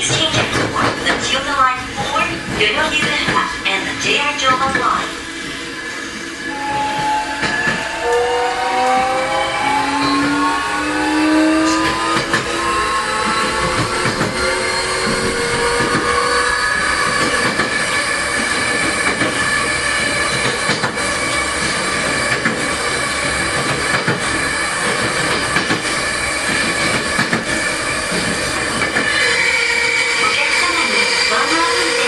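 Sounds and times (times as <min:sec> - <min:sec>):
sharp train clicks: 0:00.0 - 0:05.0, 0:06.1 - 0:09.2, 0:11.5 - 0:29.4
train rolling noise: 0:00.0 - 0:32.0
high whining electric tones: 0:06.1 - 0:20.3.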